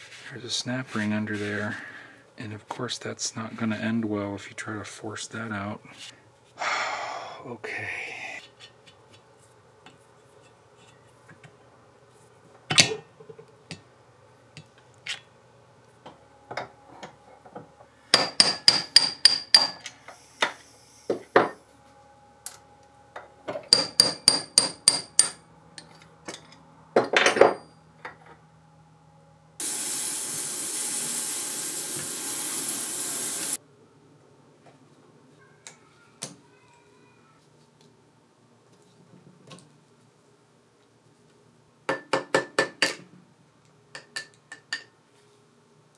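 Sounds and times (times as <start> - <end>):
steady rushing noise: 29.6 - 33.6.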